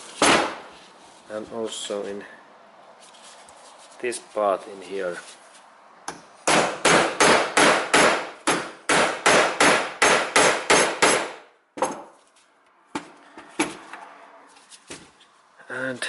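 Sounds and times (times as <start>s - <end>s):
hammer striking a knife: 6.1s - 12.2s.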